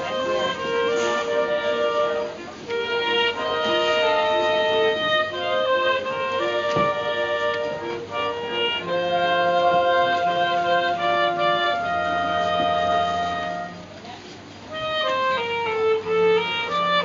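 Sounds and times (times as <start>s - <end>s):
clarinet ensemble playing: 0.0s - 17.0s.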